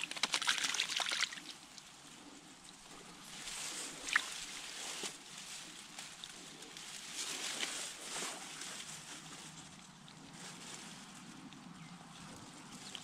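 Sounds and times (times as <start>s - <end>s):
stream water running: 0.0s - 7.6s, 12.6s - 13.0s.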